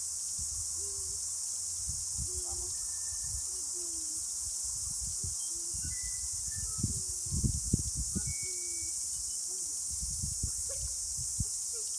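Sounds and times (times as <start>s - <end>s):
cicada chorus drone: 0.0s - 11.9s.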